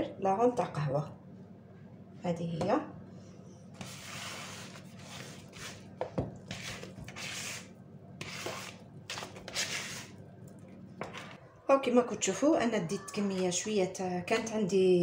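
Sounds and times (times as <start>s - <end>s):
spatula scraping bowl: 3.8s - 10.2s.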